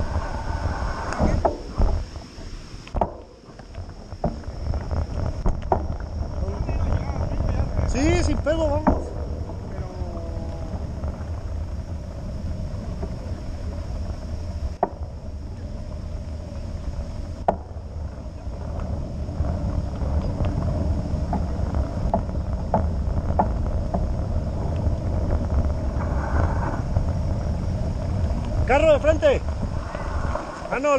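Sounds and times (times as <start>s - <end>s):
bike tyres humming on asphalt: 0.0s - 30.9s
wind rushing over microphone: 0.0s - 30.9s.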